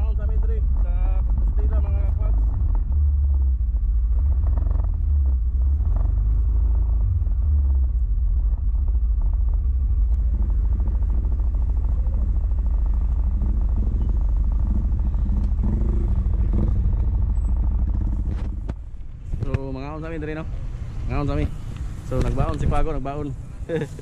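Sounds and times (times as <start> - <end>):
motorcycle engine running: 0.0 - 24.0
wind rumble on microphone: 0.0 - 24.0.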